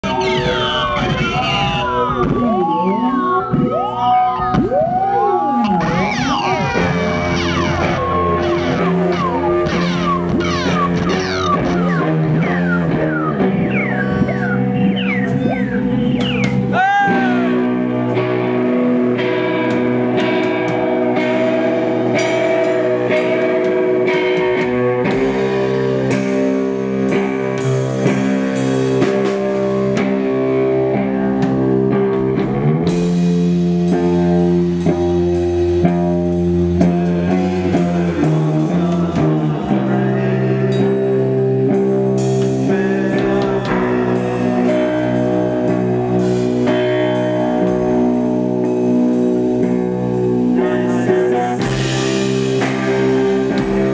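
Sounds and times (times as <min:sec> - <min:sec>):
guitar pitch slide: 0:00.0 - 0:28.5
electric guitars and bass: 0:00.0 - 0:53.9
drums and cymbals: 0:05.7 - 0:17.7, 0:19.8 - 0:30.6, 0:40.6 - 0:53.9.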